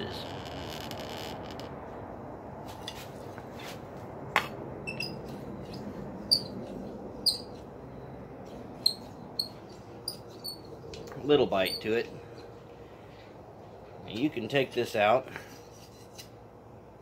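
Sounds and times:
iron hinge squeaking and clinking: 4.9s - 7.6s, 8.8s - 12.5s.

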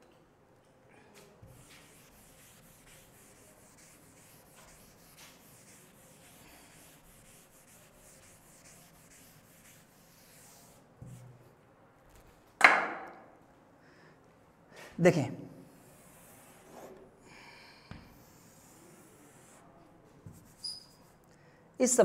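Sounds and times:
duster rubbing on chalkboard: 1.4s - 11.3s, 15.8s - 17.0s, 18.0s - 19.7s, 20.3s - 21.2s.

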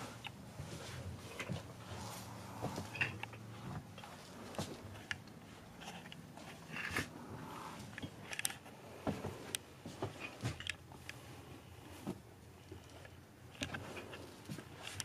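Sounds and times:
clicks taps and rustles of handling: 7.8s - 11.2s.

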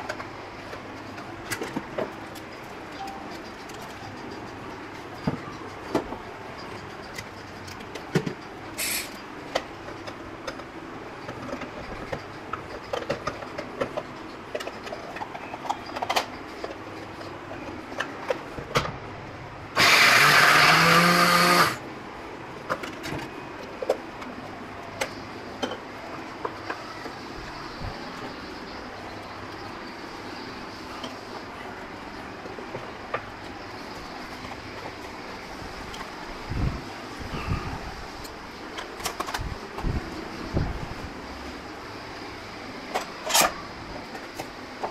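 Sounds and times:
hand blender grinding: 19.8s - 21.8s.

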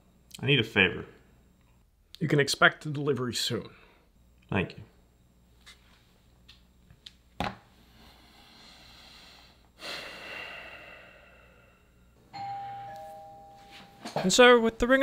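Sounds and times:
long breathy sigh: 7.9s - 12.2s
ding-dong doorbell chime: 12.3s - 14.4s.

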